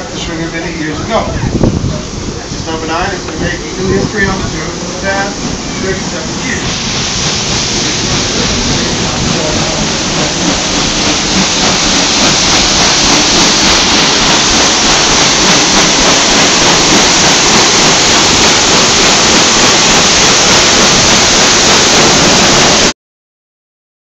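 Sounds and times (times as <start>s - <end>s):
paddlewheel churning water: 0.0s - 22.9s.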